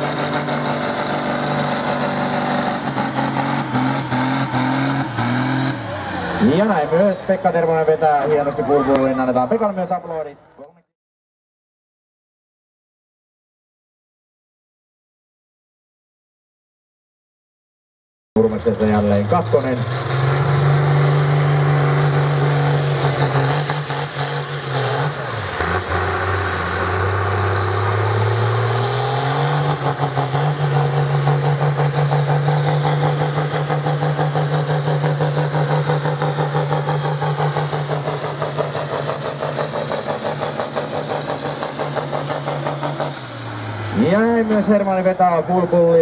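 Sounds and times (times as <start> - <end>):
tractor engine under load: 0.0 - 7.4, 19.1 - 46.0.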